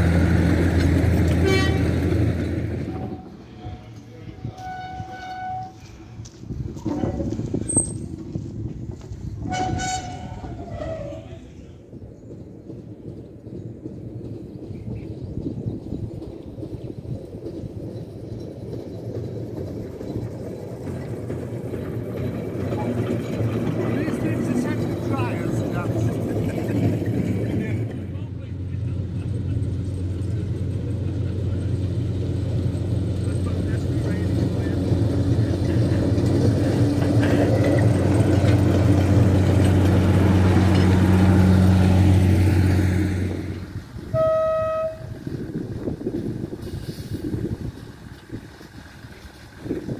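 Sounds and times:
diesel locomotive engine drone: 0.0s - 49.9s
locomotive horn blast: 1.3s - 2.2s, 2.8s - 6.0s, 9.4s - 11.4s, 44.0s - 45.2s.

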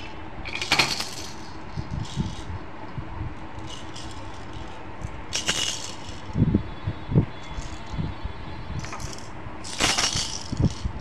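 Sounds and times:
plastic toys rattling and clattering: 0.0s - 2.5s, 3.5s - 6.4s, 7.4s - 8.0s, 8.8s - 11.0s.

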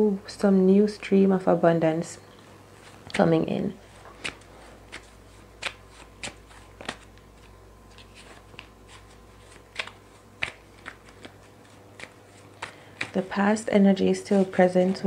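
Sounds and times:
cards being shuffled: 2.8s - 13.4s.

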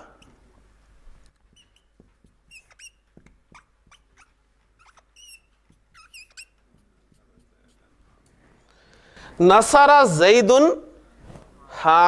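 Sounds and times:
squeaking of writing on a board: 0.0s - 0.6s, 1.2s - 8.2s.

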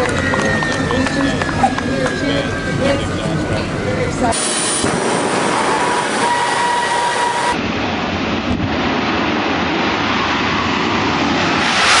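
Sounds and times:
dragster engine roaring: 0.0s - 8.8s.

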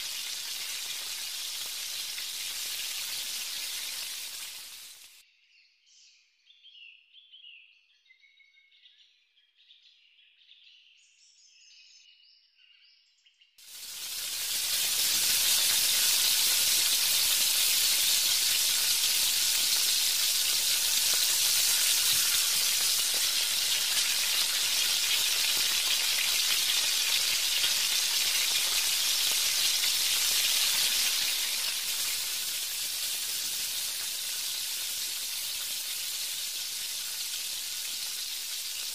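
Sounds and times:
pakoras deep-frying in hot oil: 0.0s - 5.2s, 13.6s - 38.9s.

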